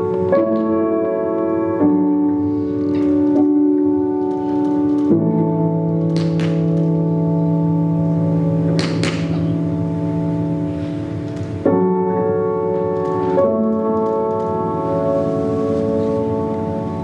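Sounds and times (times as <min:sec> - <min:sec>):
tap shoes striking floor: 0:06.1 - 0:06.7, 0:08.8 - 0:09.5.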